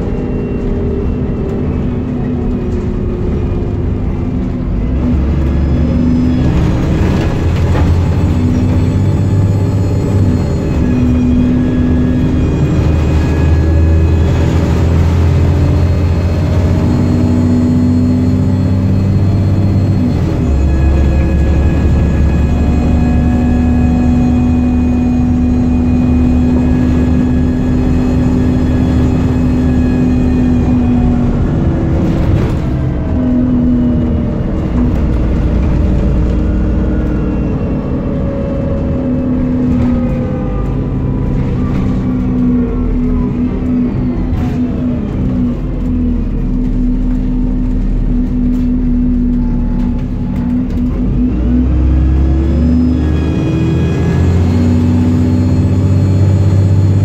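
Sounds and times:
bus engine drone and whine: 0:00.0 - 0:57.0
bus body knocks and rattles: 0:06.2 - 0:09.6.

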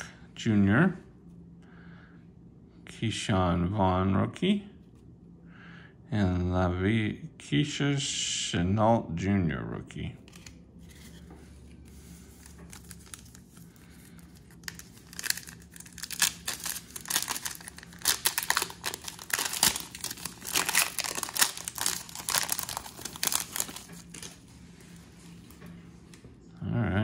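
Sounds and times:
foil wrapper tearing and crinkling: 0:12.3 - 0:24.4.

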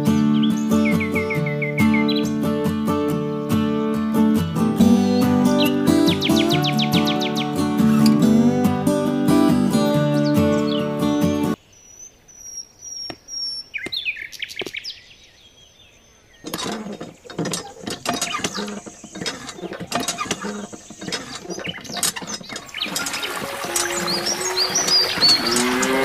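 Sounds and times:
bird chirps: 0:00.0 - 0:02.5, 0:04.9 - 0:08.2, 0:10.0 - 0:26.0
hand pump clicking and rattling: 0:05.7 - 0:08.4, 0:16.4 - 0:26.0.

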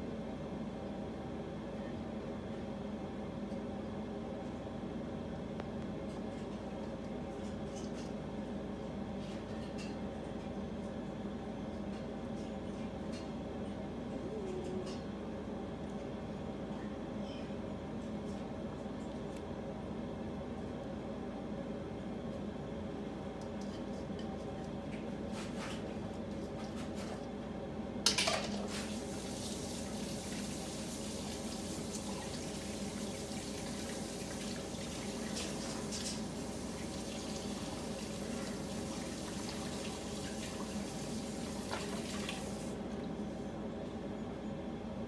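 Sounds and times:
bowl rinsed by hand: 0:28.1 - 0:42.8.

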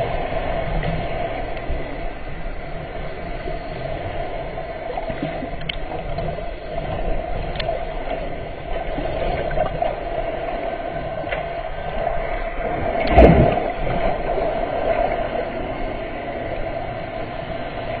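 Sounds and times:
underwater watery rush: 0:00.0 - 0:18.0
faint clicks: 0:05.1 - 0:08.3.

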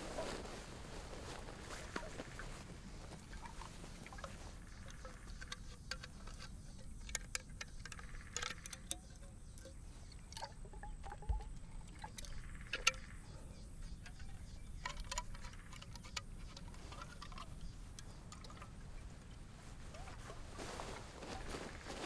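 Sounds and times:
metal flask clicks and taps: 0:04.9 - 0:13.1.

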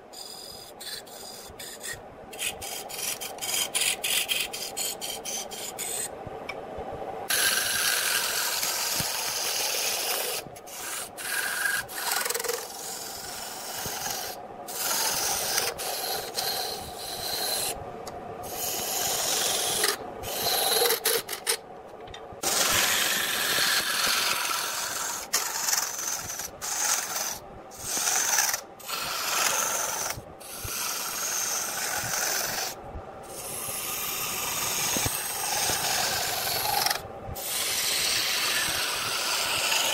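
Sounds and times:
wood lathe scraping hiss: 0:00.0 - 0:06.1, 0:07.3 - 0:17.8, 0:18.4 - 0:21.5, 0:22.4 - 0:39.9.

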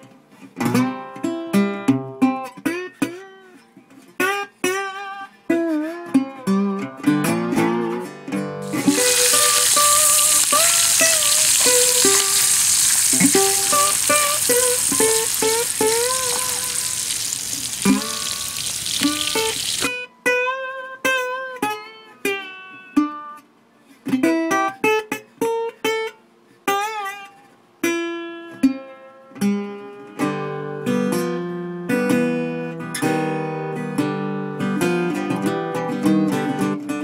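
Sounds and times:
guitar music: 0:00.3 - 0:23.4, 0:24.0 - 0:37.0
bacon sizzling in a pan: 0:08.7 - 0:19.9.

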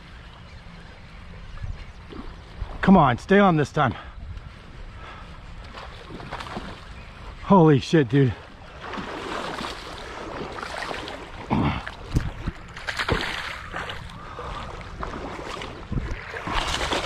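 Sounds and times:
fish thrashing and splashing in water: 0:05.8 - 0:06.9, 0:08.7 - 0:17.0.

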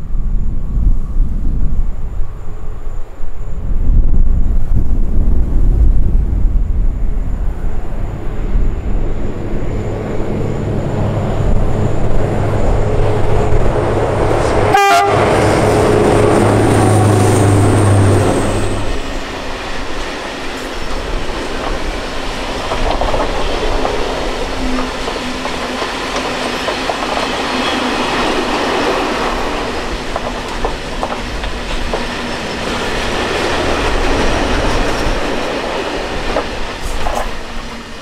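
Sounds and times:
locomotive hum and rumble: 0:00.0 - 0:38.0
train horn: 0:14.4 - 0:19.2
freight wagons rail clatter: 0:18.6 - 0:37.7.

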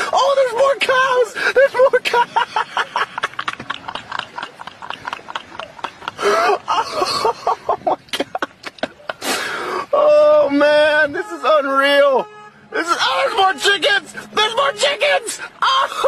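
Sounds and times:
person laughing hard: 0:01.3 - 0:10.2.

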